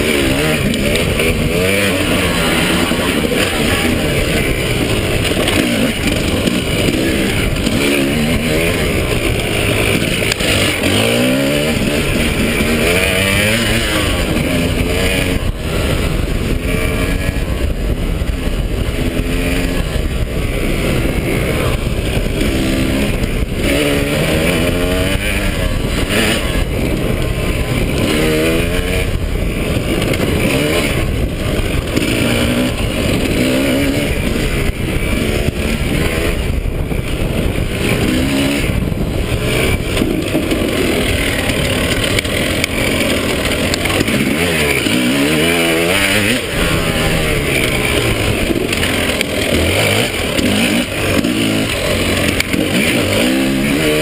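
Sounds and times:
dirt bike engine revving: 0.0s - 54.0s
wind rumble on microphone: 0.0s - 54.0s.

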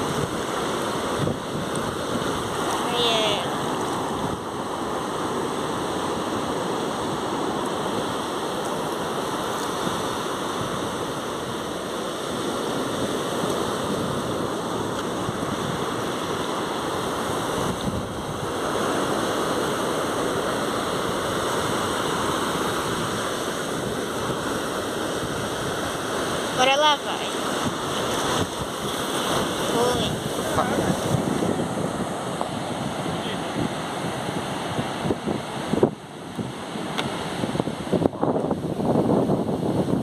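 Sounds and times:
ocean surf washing onto beach: 0.0s - 40.0s.

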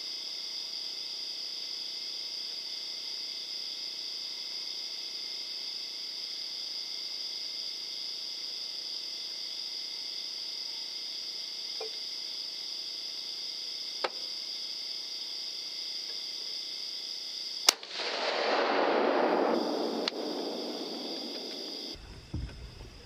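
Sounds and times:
gunshot: 17.7s - 22.0s.

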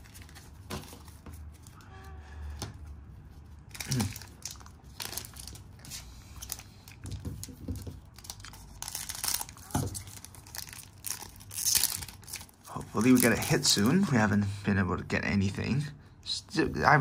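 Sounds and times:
foil wrappers crinkling: 3.7s - 14.1s.

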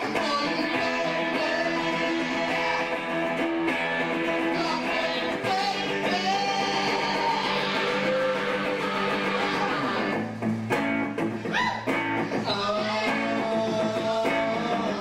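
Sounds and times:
man singing into a microphone: 0.0s - 3.2s, 4.4s - 10.2s, 12.2s - 15.0s
electric guitar strummed chords: 0.0s - 15.0s.

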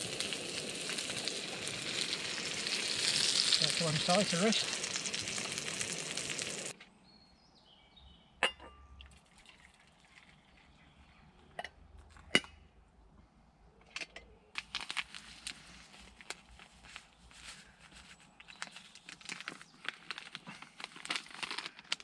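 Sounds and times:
sachet crinkling open: 0.0s - 6.7s, 14.6s - 22.0s.

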